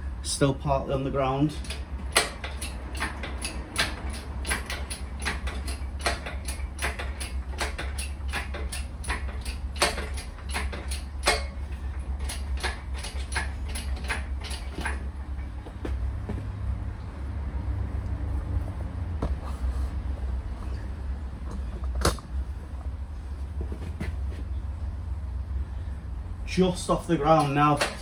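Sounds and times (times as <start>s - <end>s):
hydraulic crane pump clicking: 1.6s - 15.5s, 27.2s - 28.0s.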